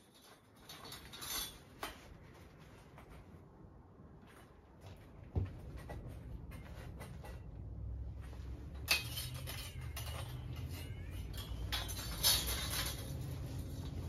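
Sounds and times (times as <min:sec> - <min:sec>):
metal saw blade clinking and rattling: 0:00.0 - 0:02.0, 0:08.7 - 0:14.0.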